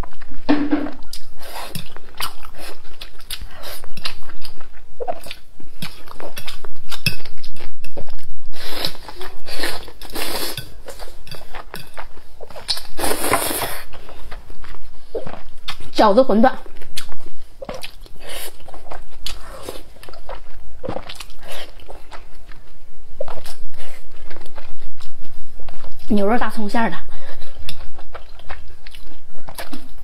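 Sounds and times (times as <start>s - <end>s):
person slurping noodles: 12.9s - 13.9s
wet chewing smacks: 27.3s - 30.0s.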